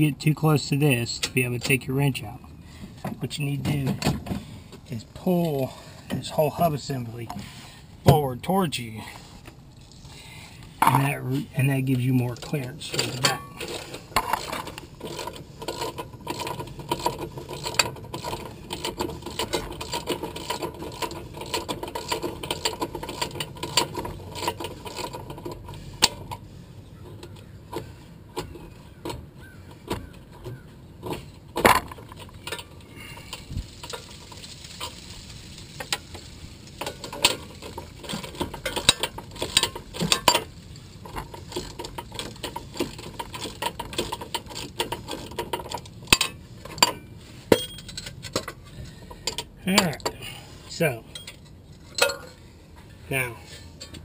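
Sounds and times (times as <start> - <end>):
ratchet wrench clicking: 13.6 - 26.2
metallic clinks and knocks: 30.3 - 50.3, 51.1 - 52.4.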